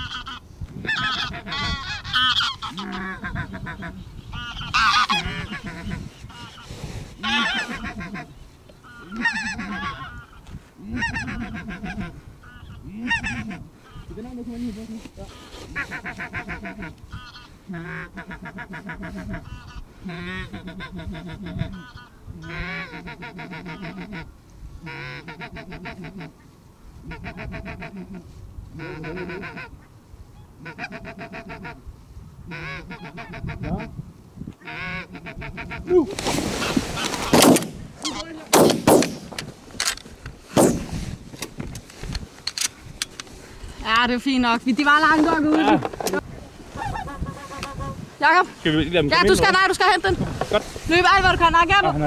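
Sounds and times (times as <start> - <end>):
geese yapping calls: 0.0 - 14.2, 15.2 - 26.4, 27.0 - 31.8, 32.5 - 33.9, 34.6 - 38.4, 45.1 - 48.5
shotgun shots: 37.2 - 37.9, 38.5 - 39.4, 40.5 - 40.9.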